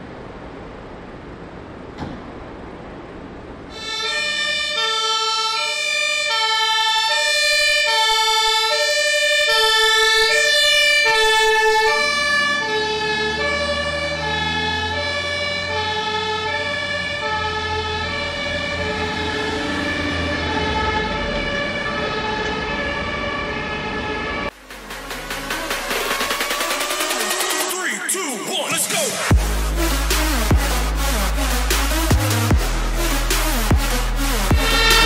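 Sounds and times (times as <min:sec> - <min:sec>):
two-tone fire truck siren: 0:03.7 - 0:35.0
diesel engine rumble: 0:07.6 - 0:27.2, 0:29.2 - 0:35.0.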